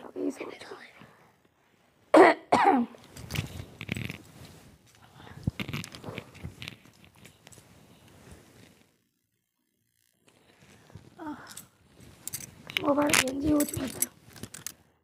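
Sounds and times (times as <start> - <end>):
woman coughing: 2.1 - 3.0
blanket rustling: 3.0 - 9.0.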